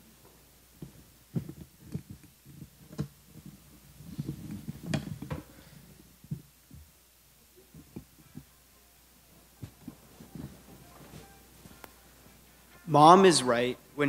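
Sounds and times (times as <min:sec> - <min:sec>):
microphone handling thumps and rustles: 0:00.8 - 0:07.0, 0:09.6 - 0:12.4.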